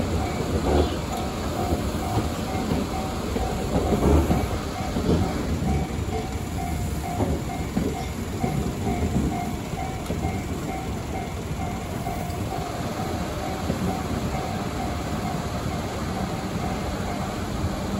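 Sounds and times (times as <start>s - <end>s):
electric train rumbling past: 0.0s - 17.9s
level crossing warning bell: 0.0s - 17.9s
train wheel knocks: 0.2s - 12.4s.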